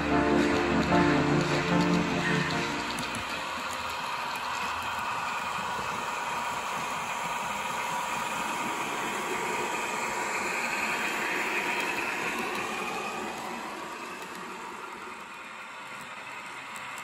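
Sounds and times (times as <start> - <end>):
model train motor whirring: 0.0 - 17.0.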